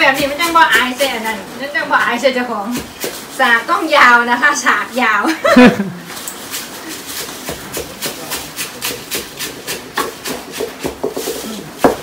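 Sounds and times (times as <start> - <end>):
pestle pounding in mortar: 0.0 - 3.7, 6.4 - 12.0.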